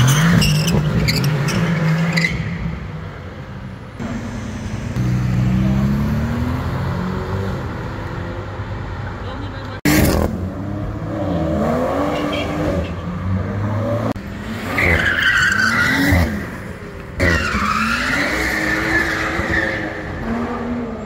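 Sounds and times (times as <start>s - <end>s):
car engine revving: 4.0s - 8.6s.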